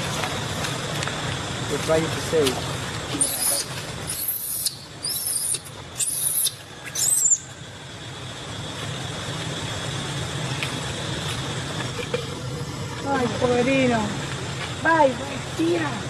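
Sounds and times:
low hum: 0.0 - 16.0
baby monkey screaming: 3.2 - 7.5.

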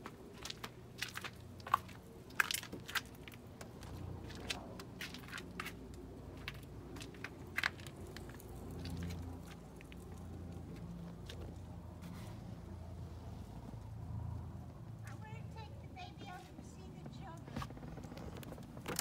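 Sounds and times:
sharp clicks and knocks: 17.0 - 19.0.

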